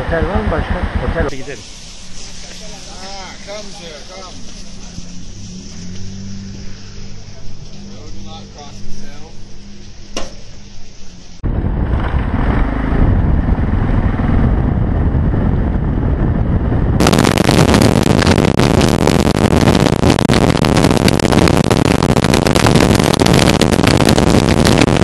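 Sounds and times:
road noise: 0.0s - 25.0s
motorcycle engine running: 4.4s - 18.2s
wind rush on microphone: 10.7s - 25.0s.

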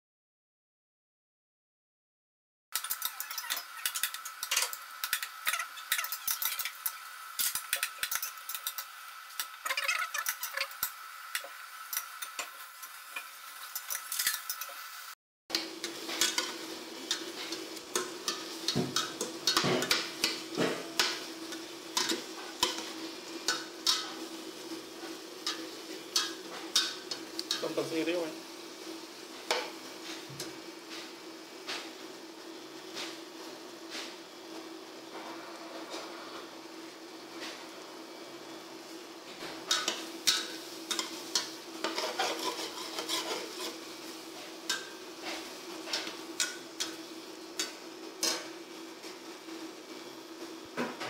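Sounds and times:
food sizzling: 2.7s - 51.0s
metal spoon scraping pot: 2.8s - 8.8s, 41.8s - 43.8s.

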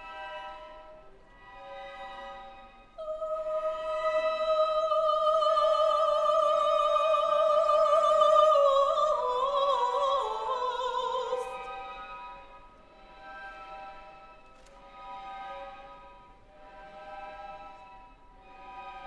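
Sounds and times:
soft string orchestra: 0.0s - 19.0s
soprano singing with vibrato: 3.0s - 12.1s.

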